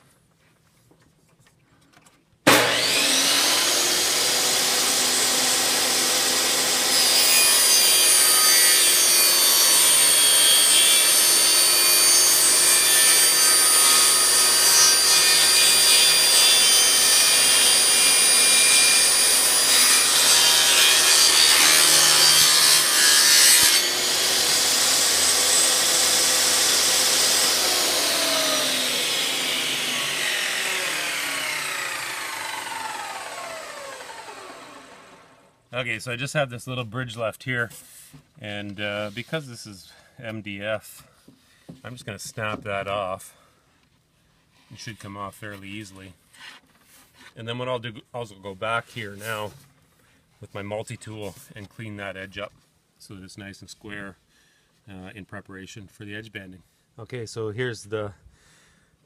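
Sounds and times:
saw blade whining through wood: 0:02.5 - 0:35.5
table saw running: 0:02.5 - 0:35.5.

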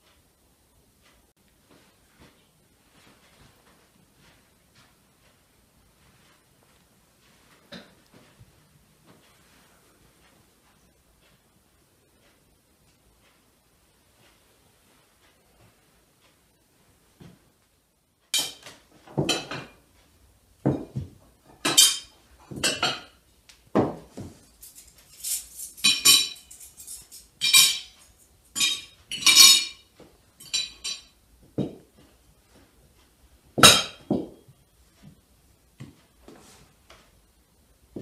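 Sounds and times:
plates and cutlery clinking: 0:18.4 - 0:19.8, 0:20.7 - 0:23.2, 0:23.8 - 0:31.8, 0:33.6 - 0:34.4.

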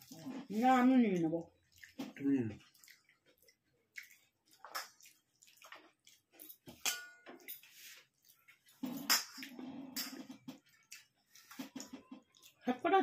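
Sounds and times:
fingers squelching in food: 0:01.1 - 0:06.4
chewing and lip smacks: 0:01.6 - 0:06.7, 0:08.1 - 0:12.6
steel dish clink: 0:06.8 - 0:07.6.

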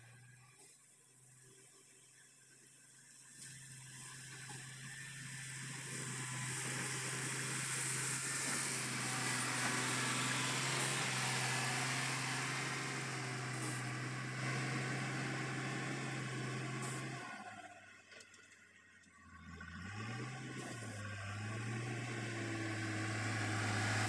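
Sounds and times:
diesel engine under load: 0:03.3 - 0:24.0
blade pushing gravel: 0:05.6 - 0:16.0.

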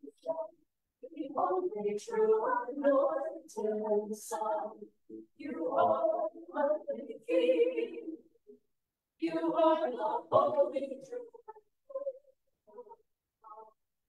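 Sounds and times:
choir singing a cappella: 0:00.0 - 0:08.3, 0:09.2 - 0:12.2.

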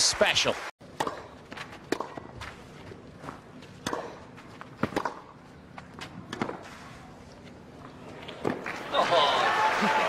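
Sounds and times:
racket striking tennis ball: 0:00.9 - 0:02.6, 0:03.8 - 0:05.4, 0:06.3 - 0:06.7
ball bouncing: 0:01.0 - 0:02.5, 0:04.8 - 0:05.3.

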